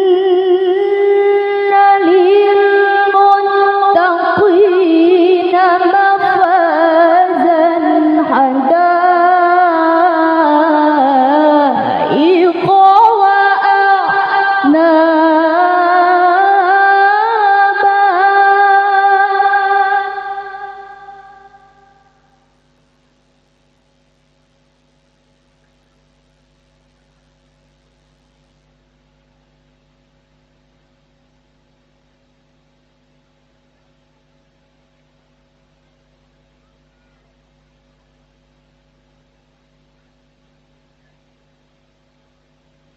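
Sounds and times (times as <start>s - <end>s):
woman reciting melodically over pa: 0.0s - 22.3s
faint electrical hum: 0.0s - 42.9s.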